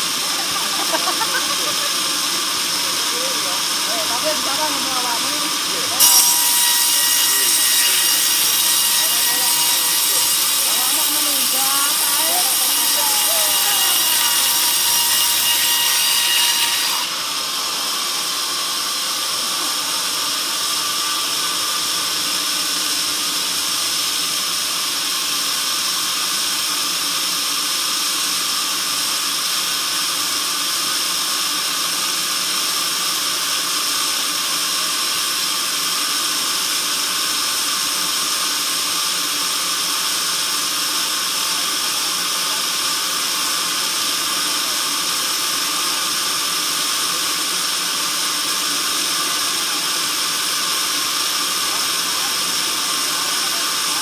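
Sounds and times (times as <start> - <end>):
band saw high-pitched whine: 0.0 - 24.4.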